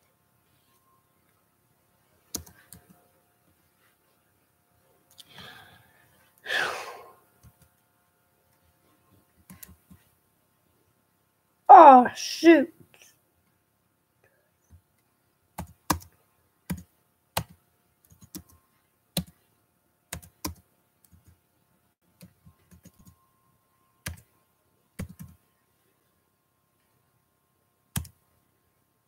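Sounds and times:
keyboard typing: 0:02.2 - 0:03.0, 0:09.4 - 0:10.1, 0:15.6 - 0:18.6, 0:19.2 - 0:19.4, 0:20.1 - 0:21.4, 0:22.1 - 0:23.2, 0:24.0 - 0:24.3, 0:25.0 - 0:25.4, 0:27.9 - 0:28.2.

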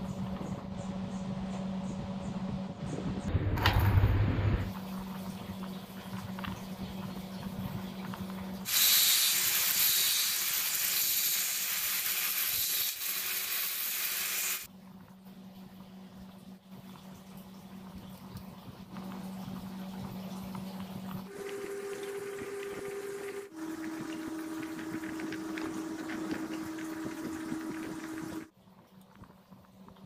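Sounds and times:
low steady hum: 0:00.0 - 0:08.7, 0:14.7 - 0:30.0
loud even hiss: 0:08.7 - 0:14.7.

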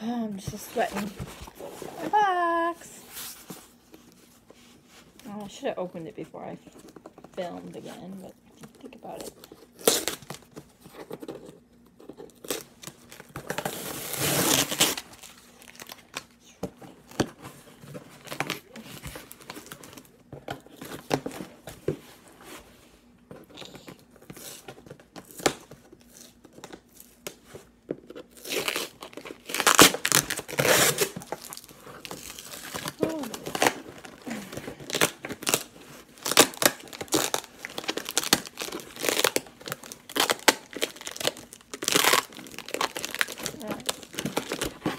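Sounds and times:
tape and packing tearing: 0:09.0 - 0:11.5, 0:12.2 - 0:16.3, 0:28.1 - 0:44.9.

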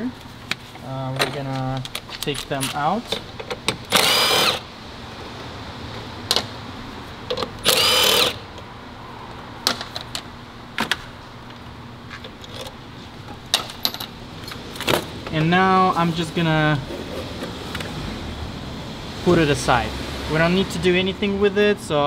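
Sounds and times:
cordless power tool motor: 0:03.9 - 0:04.7, 0:07.6 - 0:08.4.

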